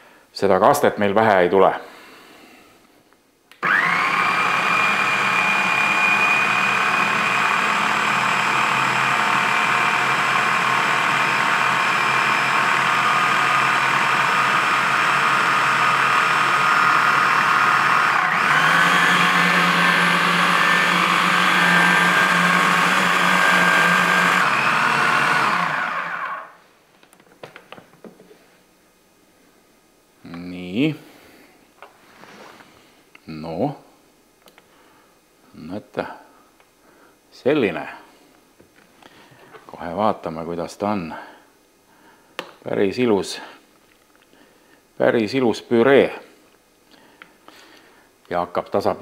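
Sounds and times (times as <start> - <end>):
blender whining: 3.6 - 26.6.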